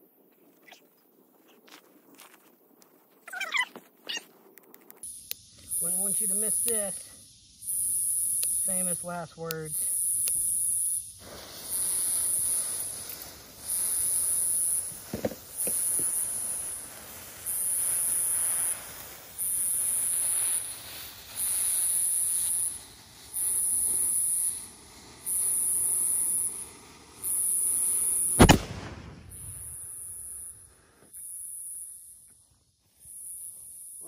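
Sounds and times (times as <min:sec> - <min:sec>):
insect calling in high pulses: 0:00.5 - 0:01.8, 0:03.2 - 0:28.6, 0:29.2 - 0:34.0
small pops: 0:03.6 - 0:06.9, 0:07.7 - 0:08.8, 0:11.7 - 0:20.6
burning fuse hissing: 0:04.3 - 0:34.0.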